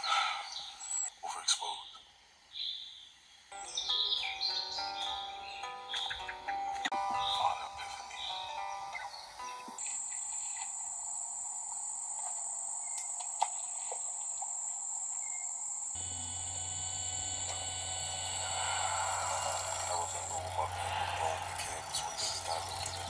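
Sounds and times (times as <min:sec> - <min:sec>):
soft outdoor hiss: 0:00.0 - 0:23.0
crickets trilling: 0:08.1 - 0:23.0
low steady hum: 0:16.0 - 0:23.0.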